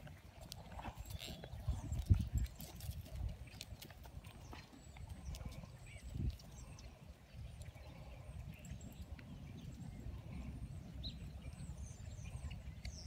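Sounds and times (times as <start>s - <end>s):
hoofbeats on soft dirt: 0.0s - 7.0s.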